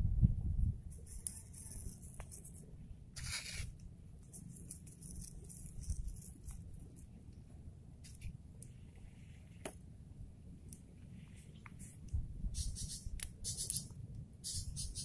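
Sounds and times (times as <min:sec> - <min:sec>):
low rumble: 0:10.0 - 0:13.1.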